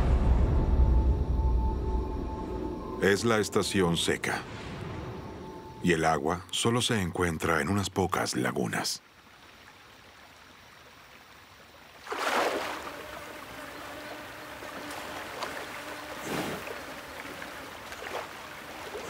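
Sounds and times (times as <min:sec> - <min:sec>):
water splashing and sloshing: 0:09.0 - 0:19.0.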